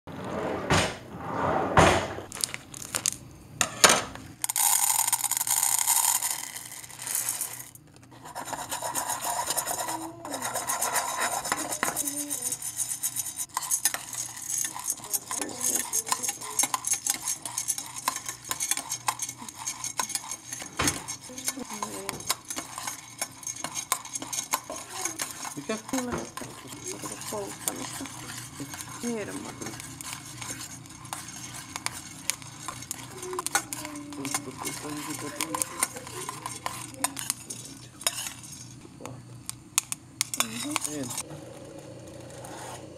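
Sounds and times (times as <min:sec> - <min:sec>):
plastic bag rustling: 0:02.2 - 0:03.2
coffee beans rattling in saucepan: 0:02.3 - 0:41.3.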